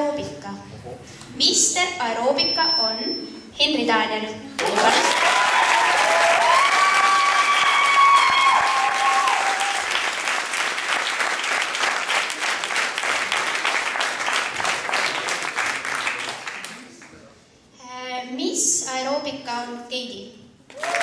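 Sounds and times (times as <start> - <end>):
high-pitched cheering voices: 4.6 - 10.0
audience applauding: 4.6 - 17.2, 20.7 - 21.0.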